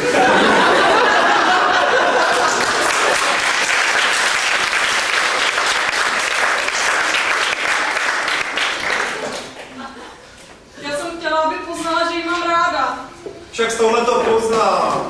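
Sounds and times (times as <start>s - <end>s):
audience laughter: 0.0s - 3.5s, 9.0s - 10.4s
audience applauding: 0.4s - 9.8s.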